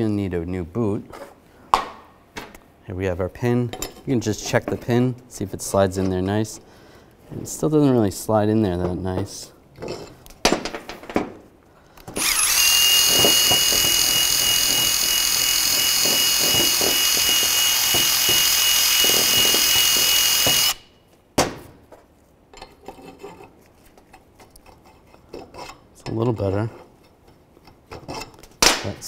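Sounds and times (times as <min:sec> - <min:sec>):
power drill whining and scraping: 0:12.1 - 0:20.9.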